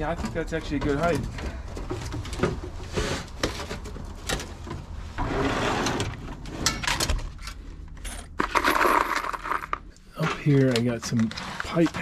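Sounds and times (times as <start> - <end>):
parts clicking and knocking: 6.0 - 12.0.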